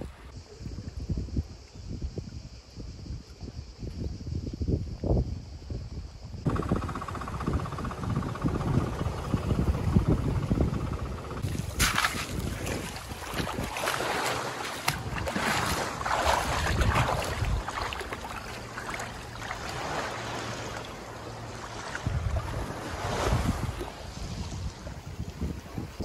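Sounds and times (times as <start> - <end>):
wind buffeting microphone: 0.0 - 26.0
small waves lapping on stones: 11.4 - 23.8.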